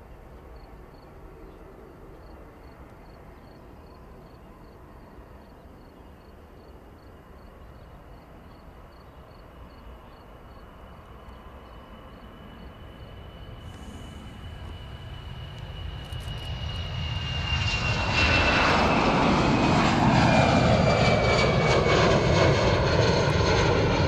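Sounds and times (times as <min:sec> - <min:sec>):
jet engines low rumble: 0:00.0 - 0:24.0
insect chirping: 0:03.0 - 0:16.9
high steady jet whine: 0:09.6 - 0:24.0.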